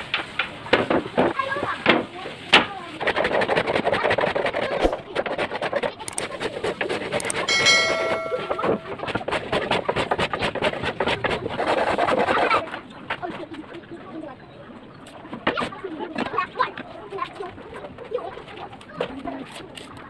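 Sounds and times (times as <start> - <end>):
hand plane shaving wood: 2.9 - 7.3, 9.1 - 12.7
short electronic chime: 7.5 - 9.0.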